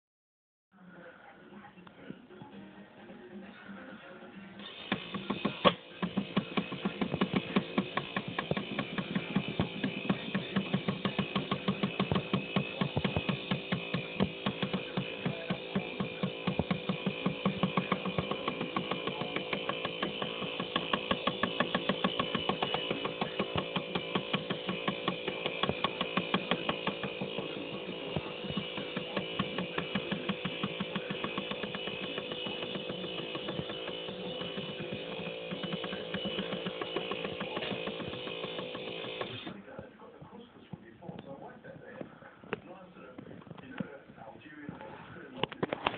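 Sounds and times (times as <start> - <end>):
small motor whining: 4.6 - 39.6.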